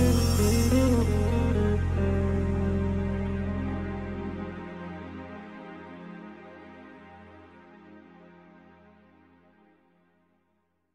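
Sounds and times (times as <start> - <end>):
instrumental music with held chords: 0.0 - 10.2.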